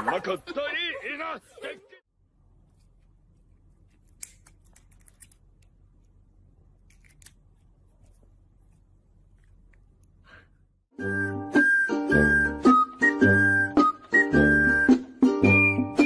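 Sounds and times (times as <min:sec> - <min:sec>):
small scissors snipping: 0:03.9 - 0:05.7, 0:06.8 - 0:07.4
music: 0:10.9 - 0:16.0.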